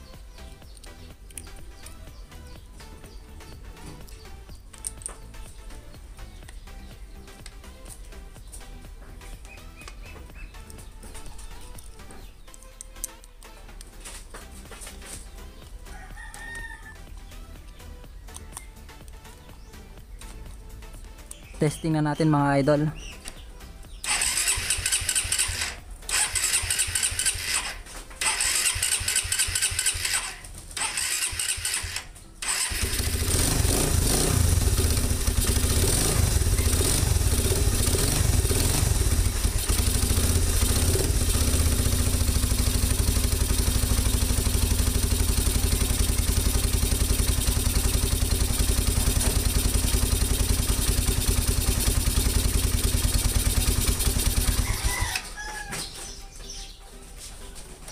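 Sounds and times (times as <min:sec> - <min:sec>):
single-cylinder engine idling: 0:23.9 - 0:55.2
engine starter cranking: 0:24.0 - 0:55.3.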